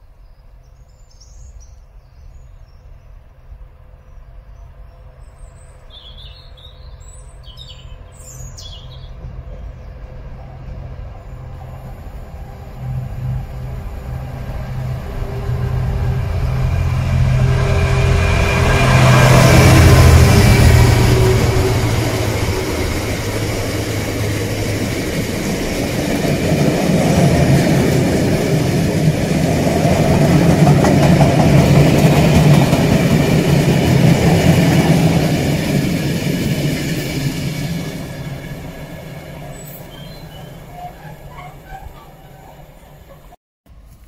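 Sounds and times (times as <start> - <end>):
diesel locomotive engine drone: 3.1 - 44.0
train wheels rumbling on rails: 7.4 - 43.4.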